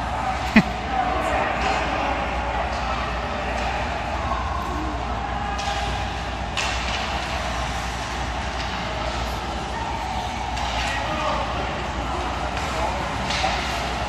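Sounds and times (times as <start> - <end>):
low arena hum: 0.0 - 14.0
hockey sticks clacking: 5.6 - 14.0.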